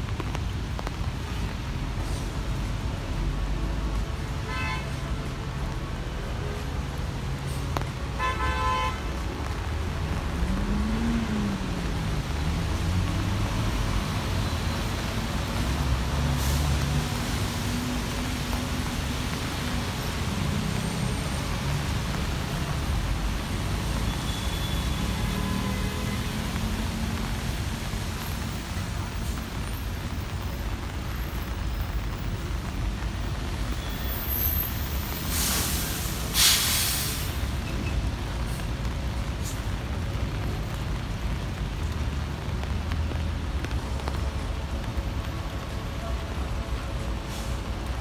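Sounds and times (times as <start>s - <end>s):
heavy rain hissing: 0.0s - 48.0s
low traffic rumble: 0.0s - 48.0s
loud sharp hiss: 35.2s - 37.6s.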